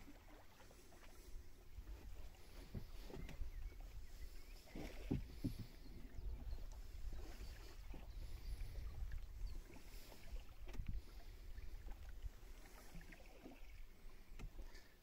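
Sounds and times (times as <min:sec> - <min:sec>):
water splashing around boat hull: 0:00.0 - 0:15.0
wind rumble on microphone: 0:01.3 - 0:12.7
boat knocks: 0:02.5 - 0:03.7, 0:04.6 - 0:06.7, 0:10.6 - 0:11.1, 0:14.3 - 0:14.8.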